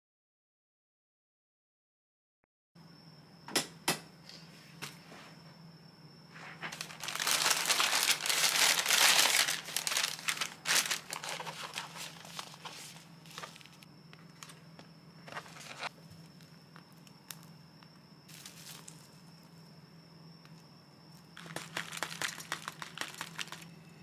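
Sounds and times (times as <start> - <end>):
paper pouches crinkling: 6.5 - 16.4, 18.3 - 19.3, 21.4 - 23.8.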